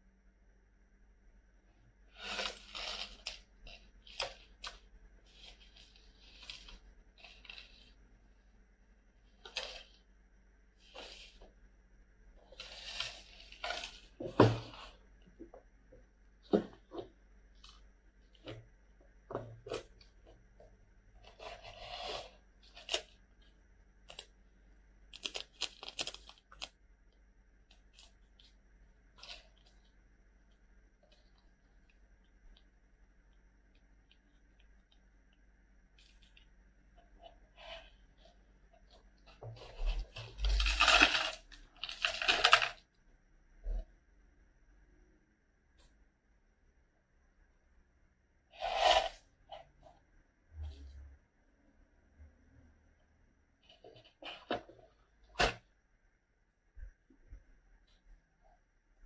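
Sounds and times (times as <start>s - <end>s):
paper cup crinkling: 2.1s - 8.0s, 12.5s - 15.0s, 25.2s - 26.7s, 37.2s - 42.8s.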